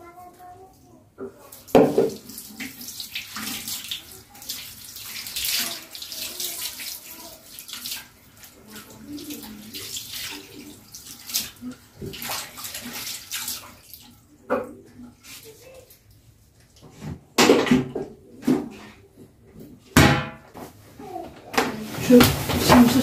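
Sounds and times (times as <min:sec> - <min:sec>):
tap water splashing into basin: 0:01.2 - 0:15.5, 0:21.6 - 0:23.0
hands rubbing basin: 0:21.6 - 0:23.0.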